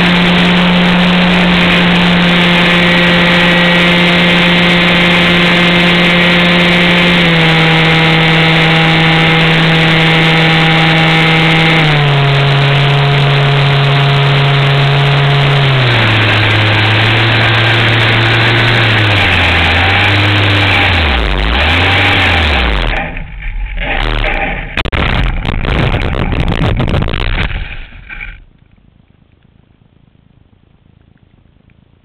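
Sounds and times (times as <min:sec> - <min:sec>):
rushing wind noise: 0:00.0 - 0:23.0, 0:23.6 - 0:28.4
model aircraft motor drone: 0:00.0 - 0:23.2.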